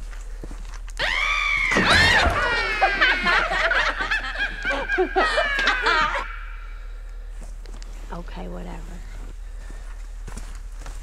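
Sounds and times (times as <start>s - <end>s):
high-pitched laughing: 1.8s - 6.7s.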